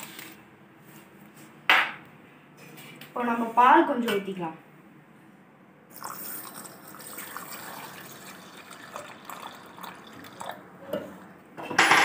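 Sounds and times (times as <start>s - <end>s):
milk pouring into steel jar: 5.9s - 10.6s.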